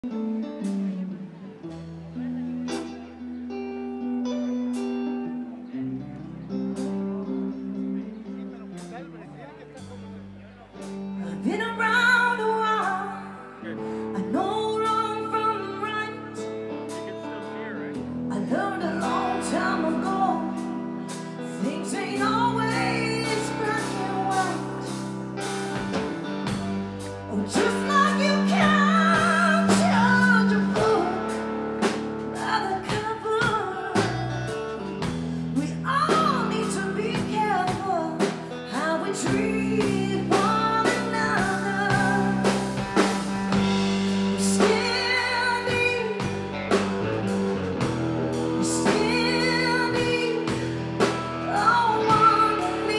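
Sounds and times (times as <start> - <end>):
electric guitar: 0.0 - 52.9
woman singing: 11.2 - 16.7, 18.3 - 26.6, 27.2 - 46.7, 48.3 - 52.9
drum kit: 18.0 - 52.9.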